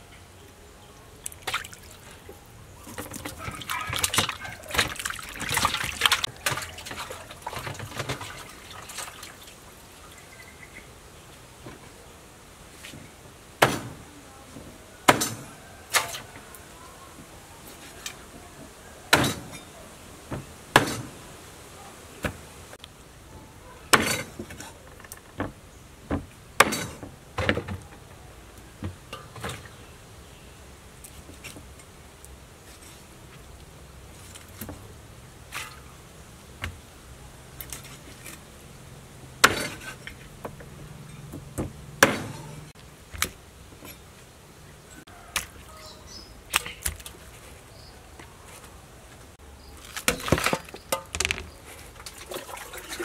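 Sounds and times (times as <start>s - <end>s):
cleaver chopping on wooden block: 42.0s - 42.4s.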